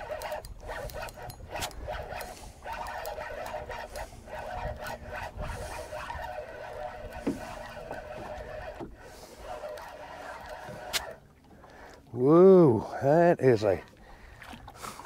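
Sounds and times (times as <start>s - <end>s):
fishing reel whirring: 0.0s - 11.2s
water rumble: 0.0s - 15.0s
wind: 0.0s - 15.0s.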